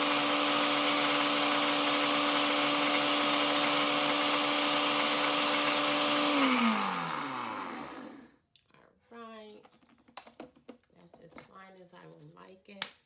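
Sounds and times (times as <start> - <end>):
electric blender grinding: 0.0 - 8.3.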